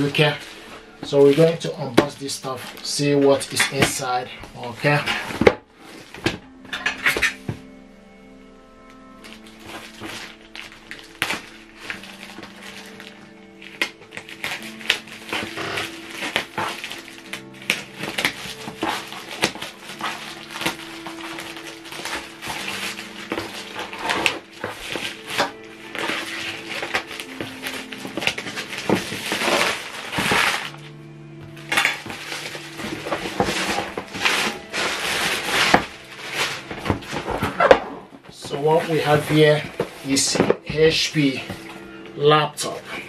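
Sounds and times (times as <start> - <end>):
plastic bag crinkling: 0.0 - 7.5, 8.7 - 43.0
background music with held tones: 0.0 - 43.0
scissors cutting plastic: 9.2 - 40.7.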